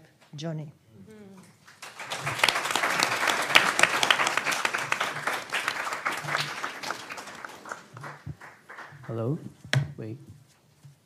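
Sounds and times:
audience applauding: 0:01.6 - 0:09.6.

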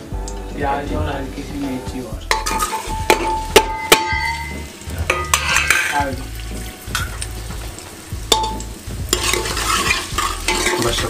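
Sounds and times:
food sizzling in hot oil: 0:00.0 - 0:11.0
ladle clinking against pot: 0:02.3 - 0:06.1.

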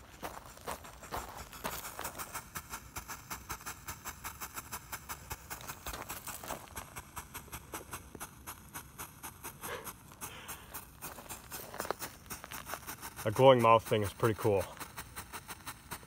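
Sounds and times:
firework fountain crackling: 0:00.0 - 0:16.0.

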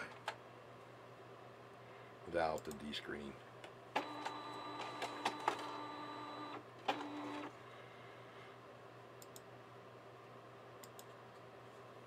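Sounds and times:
scanner motor whine: 0:04.0 - 0:07.4.

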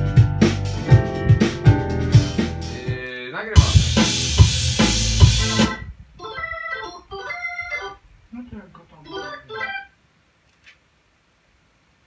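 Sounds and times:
organ over drum track: 0:00.0 - 0:08.0.

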